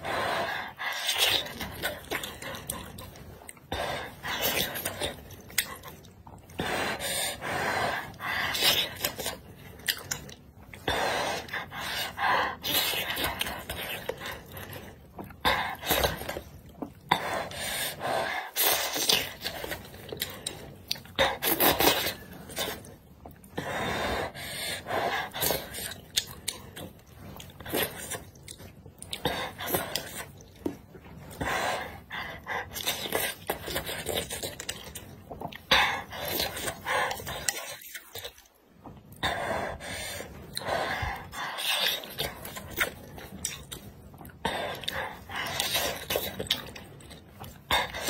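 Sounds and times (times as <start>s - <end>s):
wet chewing: 0.7s - 6.7s, 8.0s - 17.2s, 25.2s - 48.0s.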